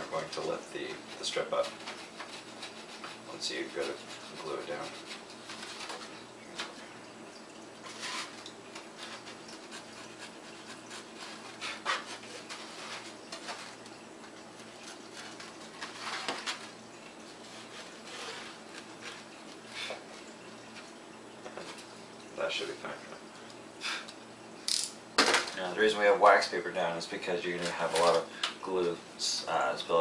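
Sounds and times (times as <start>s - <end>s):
paper and foam rustling: 0.0s - 6.8s, 7.8s - 23.0s, 27.4s - 28.9s.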